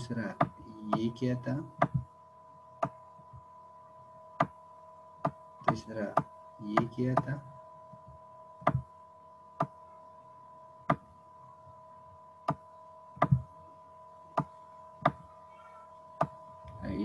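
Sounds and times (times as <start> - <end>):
steady high hum: 0.0 - 17.0.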